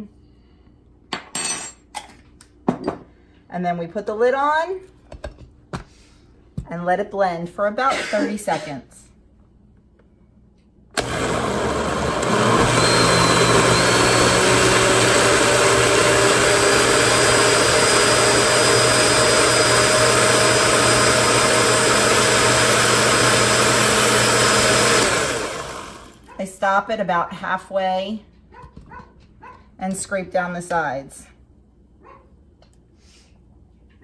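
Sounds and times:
blender motor whirring: 11.0s - 26.3s.

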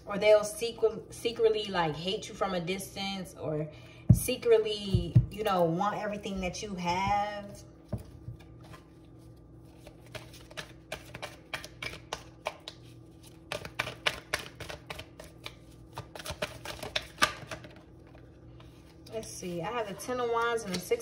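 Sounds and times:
cards being shuffled by hand: 7.9s - 19.0s.

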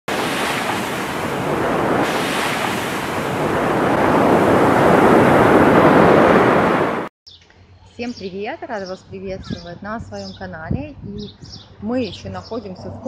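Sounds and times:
sea surf breaking on beach: 0.1s - 7.1s.

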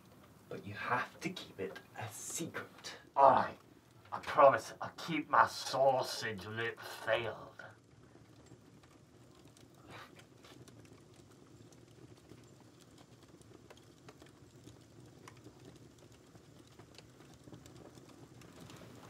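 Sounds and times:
faint clicks: 7.8s - 19.0s.

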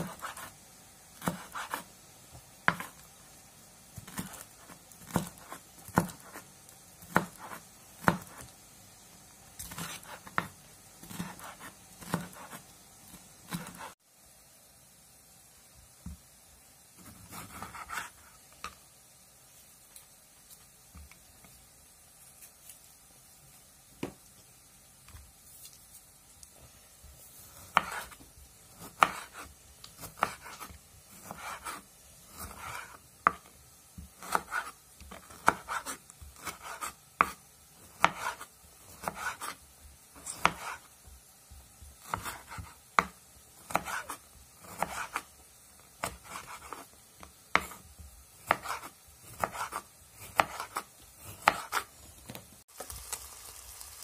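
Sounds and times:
knife slicing tomatoes on a board: 0.0s - 3.2s, 3.9s - 8.6s, 9.5s - 14.0s, 17.0s - 18.8s, 27.2s - 52.5s.

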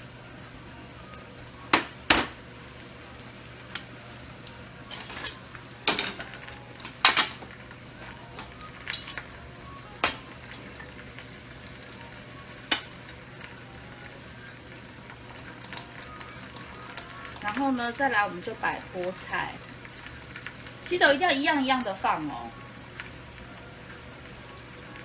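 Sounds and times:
dishes and utensils clinking: 8.4s - 9.3s.

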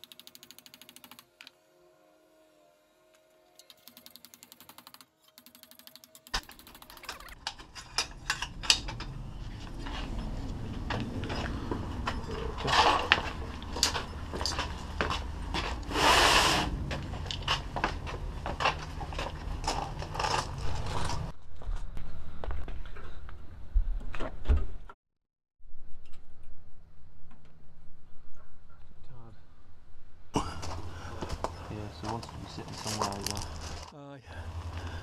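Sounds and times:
footsteps: 7.2s - 24.3s, 30.4s - 33.9s
low rumble: 7.4s - 16.0s, 16.6s - 22.8s.

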